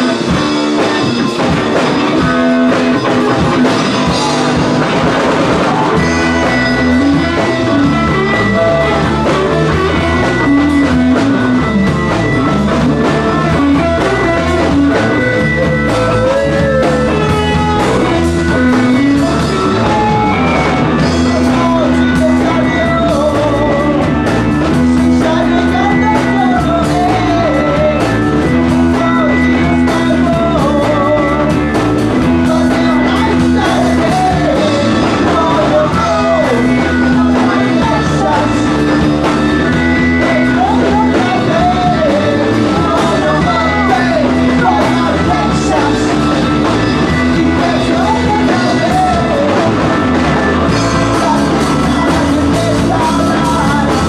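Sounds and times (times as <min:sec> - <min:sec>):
man singing into a microphone: 0:00.0 - 0:04.8, 0:05.6 - 0:54.0
drums: 0:00.0 - 0:54.0
electric guitar: 0:00.0 - 0:54.0.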